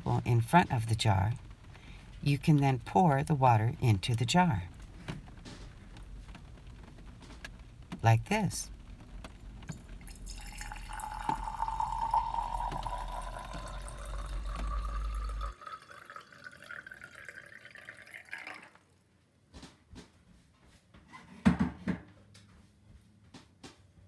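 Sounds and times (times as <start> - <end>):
water pouring into a jar: 9.7 - 18.9.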